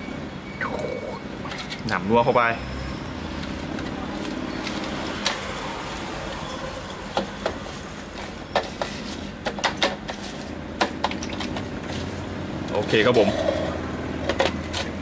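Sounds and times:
steady background hum: 0.0s - 2.1s.

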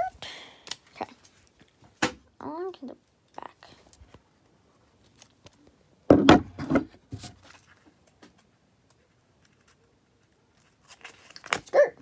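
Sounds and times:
knocks and rustles of handling: 3.8s - 11.7s.

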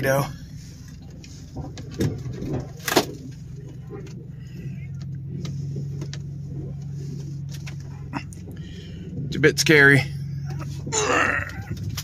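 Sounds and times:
pickup engine running: 0.0s - 12.0s
sharp clicks and knocks: 1.0s - 4.3s.

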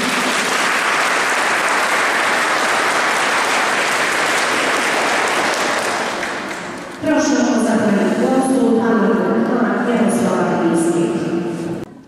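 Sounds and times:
crowd applause: 0.0s - 7.0s.

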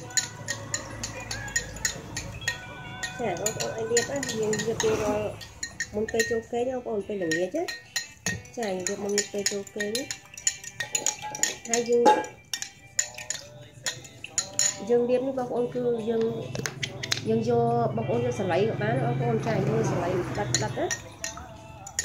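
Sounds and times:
spoon clinking in glass bowl: 0.0s - 15.4s, 20.4s - 22.0s.

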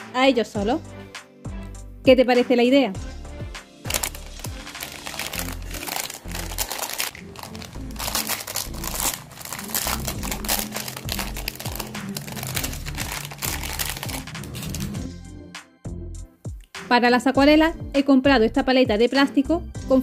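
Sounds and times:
background music with bass: 0.0s - 20.0s
plastic film crinkling: 3.9s - 15.0s.

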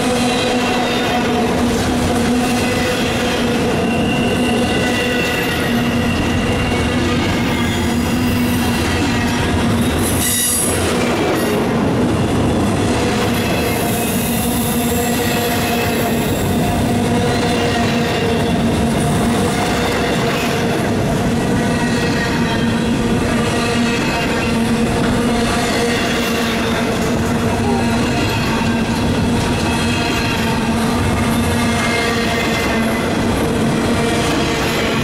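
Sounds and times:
freight train wheels rumbling: 0.0s - 35.0s
train wheels squealing: 2.4s - 10.8s, 13.3s - 20.5s.

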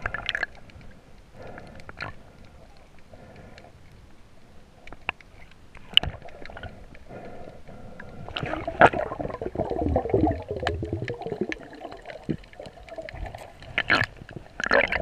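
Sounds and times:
underwater gurgling: 0.0s - 3.6s, 5.2s - 15.0s
sharp underwater clicks: 0.0s - 4.1s, 4.7s - 9.1s.

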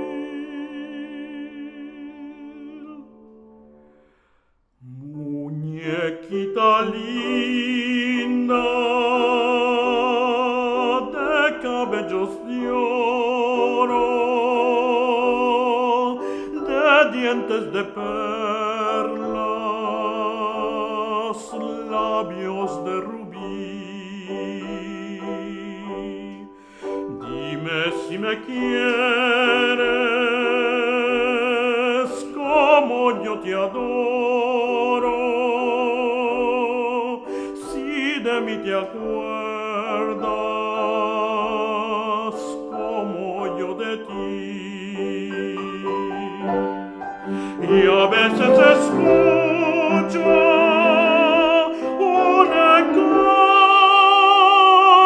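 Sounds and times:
tenor singing operatically: 0.0s - 3.4s, 4.8s - 55.0s
piano accompaniment: 0.0s - 55.0s.

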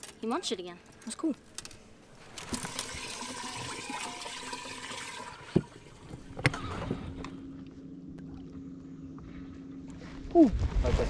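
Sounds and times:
steady low hum: 4.6s - 11.0s.

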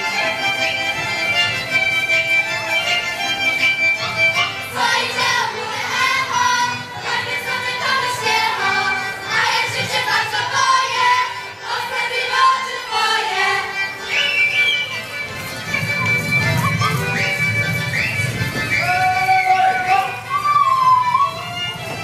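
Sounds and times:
folk instrumental music: 0.0s - 22.0s
high voices singing in unison: 4.7s - 14.3s.

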